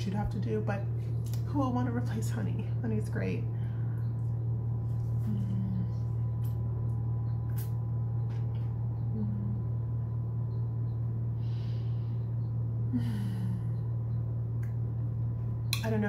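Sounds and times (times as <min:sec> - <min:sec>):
low electrical hum: 0:00.0 - 0:16.0
person humming mm: 0:05.2 - 0:06.2, 0:09.1 - 0:09.8, 0:12.9 - 0:13.9.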